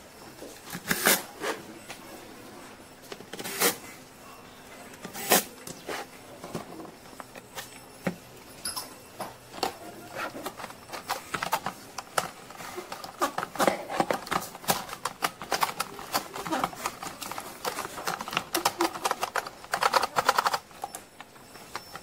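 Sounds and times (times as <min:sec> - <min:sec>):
hard plastic parts clicking and rattling: 0:04.9 - 0:22.0.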